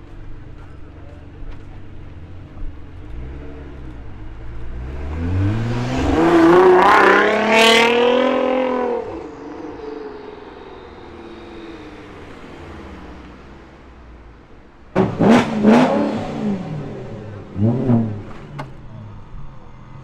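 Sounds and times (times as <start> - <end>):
car accelerating past: 3.1 - 14.3.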